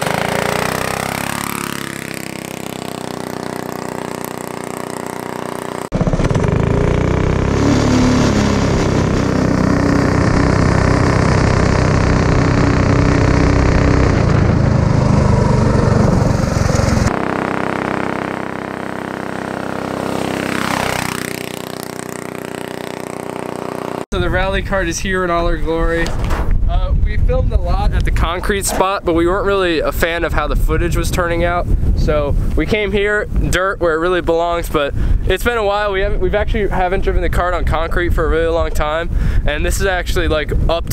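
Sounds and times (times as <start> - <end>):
go-kart engine running: 0.0 - 24.0.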